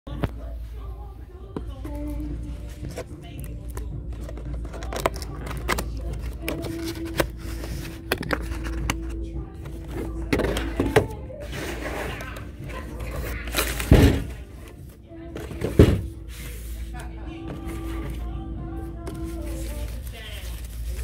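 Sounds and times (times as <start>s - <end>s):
cardboard rustling and scraping: 4.2s - 18.3s, 19.0s - 21.0s.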